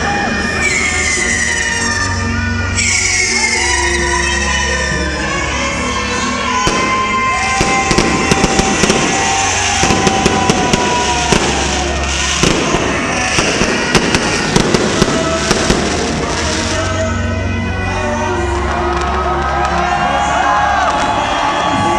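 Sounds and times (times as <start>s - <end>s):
loud music: 0.0s - 21.9s
fireworks cracking and popping: 6.6s - 17.2s, 18.6s - 21.9s.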